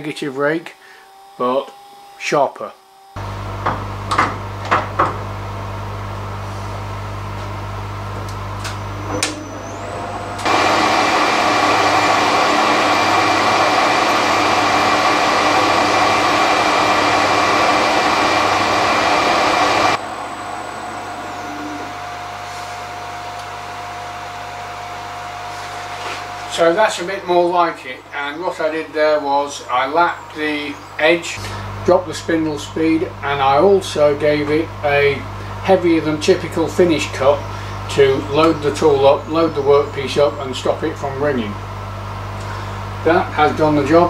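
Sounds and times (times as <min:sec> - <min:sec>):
metal cutting noise: 0:00.0 - 0:04.2, 0:08.6 - 0:34.5
lathe running: 0:00.0 - 0:44.0.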